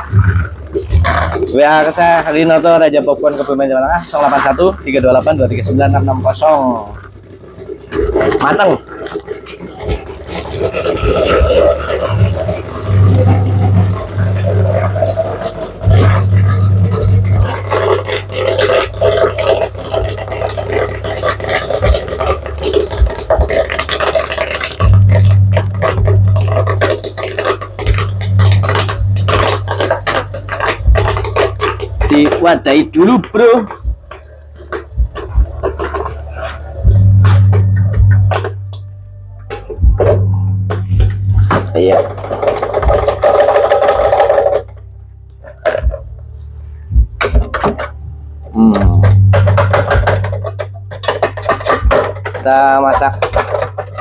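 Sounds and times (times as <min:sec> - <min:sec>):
deep steady hum: 0:00.0 - 0:54.0
fast rhythmic music: 0:00.0 - 0:54.0
low drone: 0:00.0 - 0:54.0
low steady hum: 0:00.0 - 0:54.0
metal pot knocks and clatters: 0:48.9 - 0:54.0.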